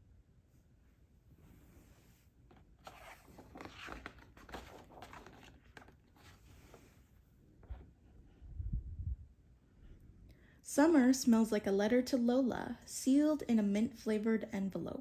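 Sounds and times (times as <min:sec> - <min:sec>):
book page rustling: 0:02.4 - 0:08.0.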